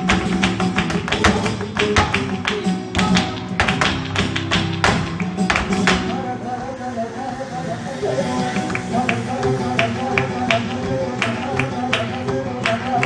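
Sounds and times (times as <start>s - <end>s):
dancer's feet stamping on stage: 0.0s - 6.1s
hand-clapping: 0.0s - 6.1s, 8.6s - 13.0s
flamenco guitar: 0.0s - 13.0s.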